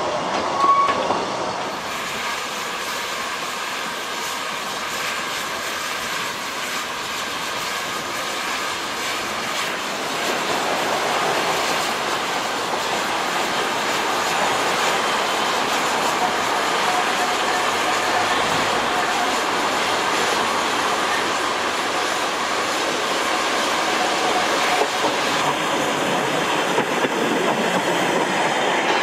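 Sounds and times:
steam train steam: 0.0s - 29.0s
coaches clattering on rails: 24.0s - 29.0s.

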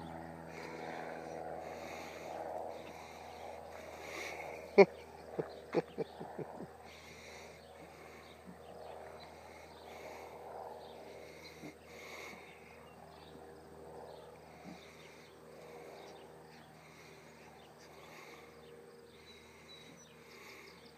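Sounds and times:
insects chirping: 0.5s - 20.9s.

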